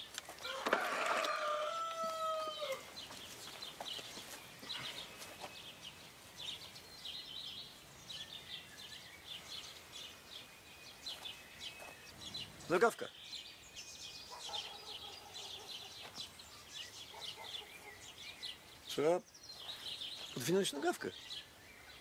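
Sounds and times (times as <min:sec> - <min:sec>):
small birds chirping: 0:00.0 - 0:00.6, 0:01.2 - 0:22.0
rooster crowing: 0:00.4 - 0:02.9.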